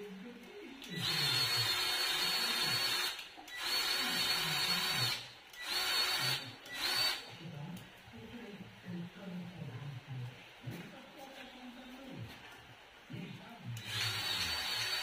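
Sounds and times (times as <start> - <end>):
cordless grease gun motor: 13.8 - 15.0.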